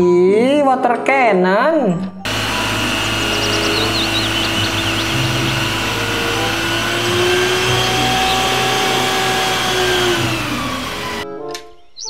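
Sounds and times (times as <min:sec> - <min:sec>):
high-pressure water jet hissing: 0:02.3 - 0:11.2
truck engine humming: 0:02.3 - 0:11.2.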